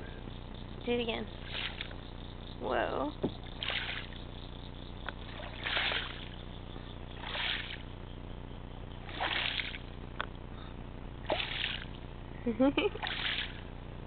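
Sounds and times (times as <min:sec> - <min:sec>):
short water splashes: 0:01.4 - 0:01.9, 0:03.6 - 0:04.2, 0:05.2 - 0:06.4, 0:07.2 - 0:07.8, 0:09.1 - 0:09.8, 0:11.3 - 0:12.0, 0:13.0 - 0:13.6.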